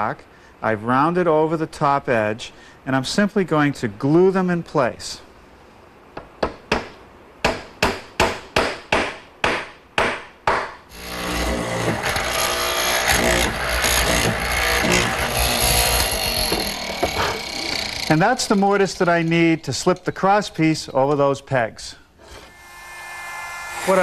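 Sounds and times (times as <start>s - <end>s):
mortiser machine running: 10.9s - 19.8s.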